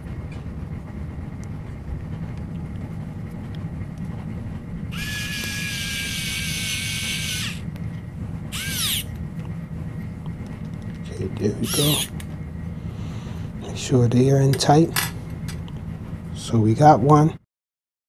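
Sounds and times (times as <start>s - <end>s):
electric screwdriver whine: 4.9s - 7.6s, 8.5s - 9.1s, 11.6s - 12.2s.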